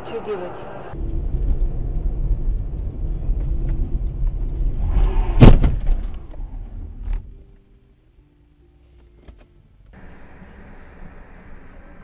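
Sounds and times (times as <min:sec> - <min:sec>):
vehicle rumble: 0:00.0 - 0:08.1, 0:08.8 - 0:12.0
loud sharp bang: 0:04.8 - 0:06.1.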